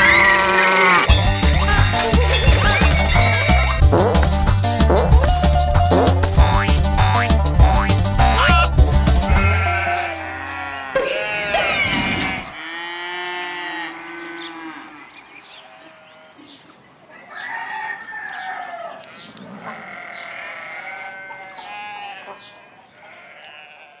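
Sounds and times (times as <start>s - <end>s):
sheep bleating: 0.0s - 3.9s, 8.3s - 15.0s, 19.1s - 24.0s
upbeat music: 1.0s - 10.4s.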